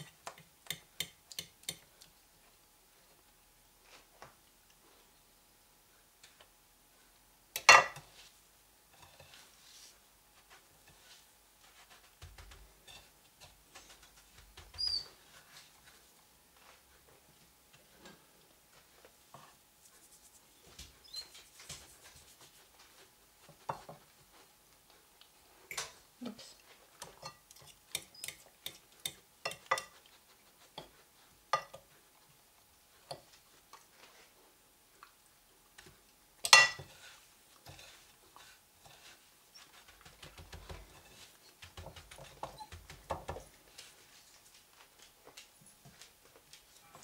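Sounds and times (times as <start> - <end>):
fork tapping porcelain plates: 27.1 - 29.9.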